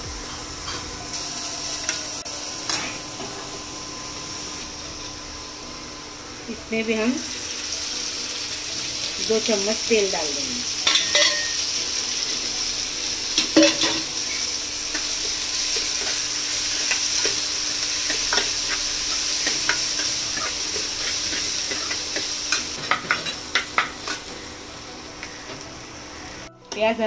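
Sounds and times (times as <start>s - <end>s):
onions sizzling in oil: 0.0s - 27.0s.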